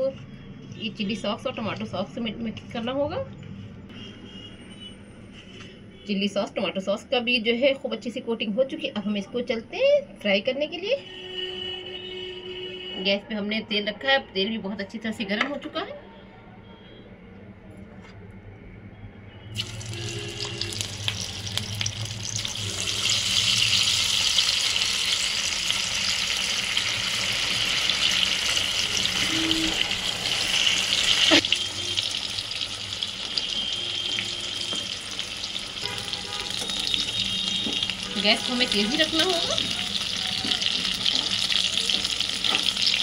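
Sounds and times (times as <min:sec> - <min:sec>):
potatoes sizzling in hot oil: 0:19.6 - 0:43.0.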